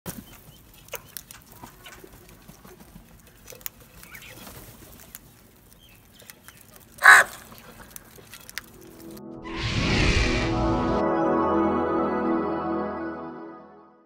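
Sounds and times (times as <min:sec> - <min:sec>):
beaks pecking grain and bowls: 0:00.1 - 0:09.2
crow cawing: 0:07.0 - 0:07.5
faint crow calls: 0:07.0 - 0:07.7.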